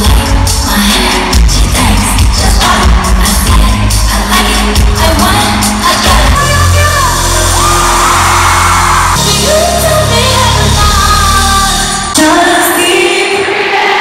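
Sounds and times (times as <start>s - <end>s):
singer's gliding vocal: 0.0s - 8.0s
live pop band: 0.0s - 14.0s
crowd yelling and whooping: 7.2s - 9.2s.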